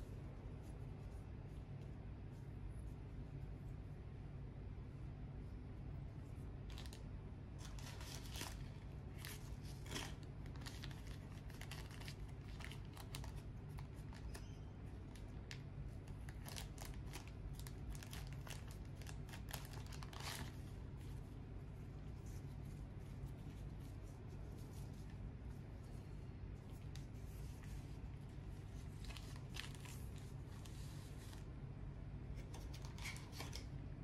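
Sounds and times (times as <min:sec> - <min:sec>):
steady low hum: 0:00.0 - 0:34.0
paper rustling and crinkling: 0:06.6 - 0:14.4, 0:15.0 - 0:26.0, 0:26.6 - 0:31.5, 0:32.3 - 0:33.7.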